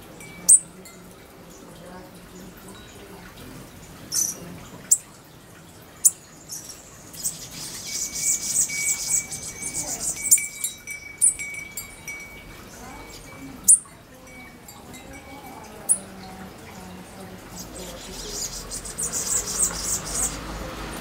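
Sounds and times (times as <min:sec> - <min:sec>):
metal wind chime ringing: 0:00.0 - 0:01.9, 0:07.8 - 0:17.1
high-pitched bird chirps: 0:00.4 - 0:00.7, 0:04.1 - 0:05.1, 0:06.0 - 0:14.0, 0:15.8 - 0:16.1, 0:17.5 - 0:20.4.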